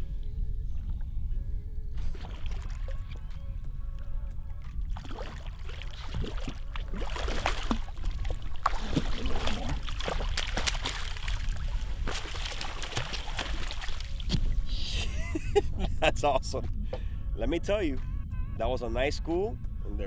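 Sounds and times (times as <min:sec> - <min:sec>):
wind rumbling on microphone: 0:00.0 - 0:20.0
fish thrashing and splashing: 0:02.0 - 0:03.3, 0:04.7 - 0:14.6.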